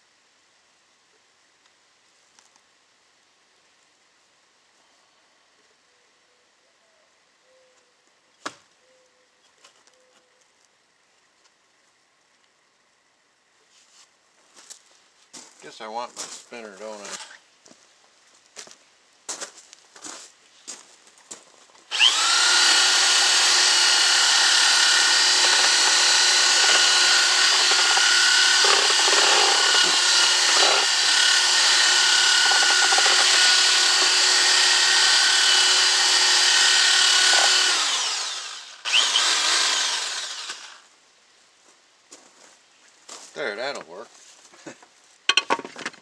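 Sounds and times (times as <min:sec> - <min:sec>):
electric drill mixing mortar: 0:21.9 - 0:40.8.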